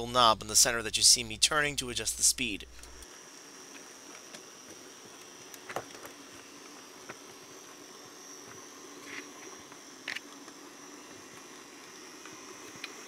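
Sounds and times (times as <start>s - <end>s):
model train motor whine: 2.8s - 13.0s.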